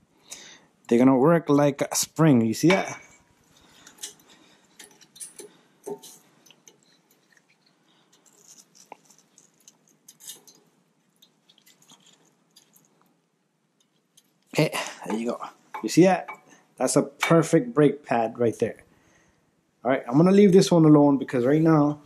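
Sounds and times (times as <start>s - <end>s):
metallic clicks and scrapes: 3.1s - 13.1s.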